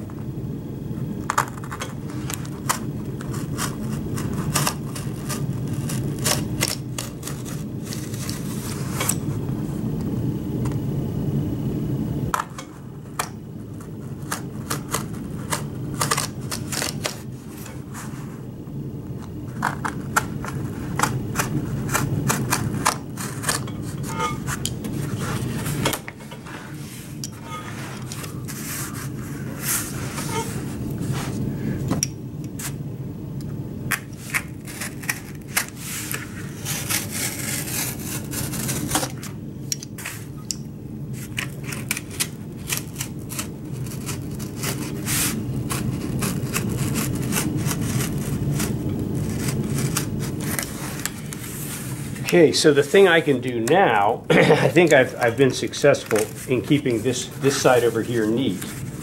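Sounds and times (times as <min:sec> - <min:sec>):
steady low hum: 0:00.0 - 0:59.0
knife slicing cardboard: 0:14.3 - 0:17.7, 0:34.3 - 0:39.2.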